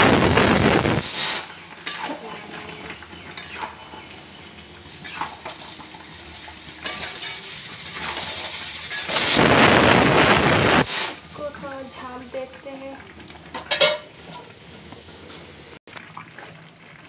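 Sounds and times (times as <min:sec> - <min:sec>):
loud sizzling hiss: 0:00.0 - 0:01.7, 0:03.2 - 0:12.4
metal spatula scraping pan: 0:01.8 - 0:09.4.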